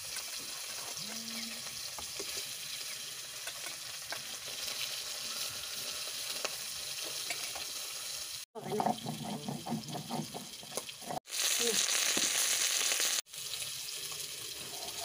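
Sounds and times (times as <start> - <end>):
fish frying in hot oil: 0.0 - 15.0
spatula turning fish: 8.6 - 11.2.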